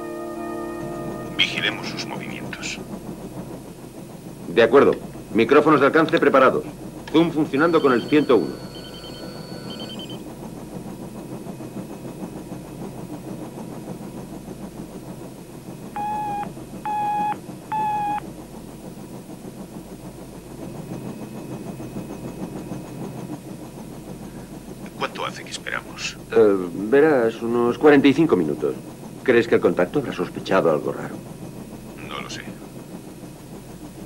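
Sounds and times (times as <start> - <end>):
short beeps: 16.0 - 18.2.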